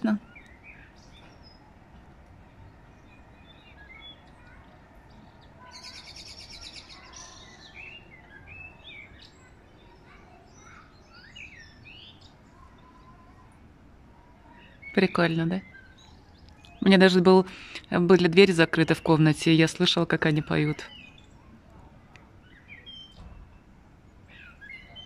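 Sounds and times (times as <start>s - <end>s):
songbirds singing: 0.0s - 25.0s.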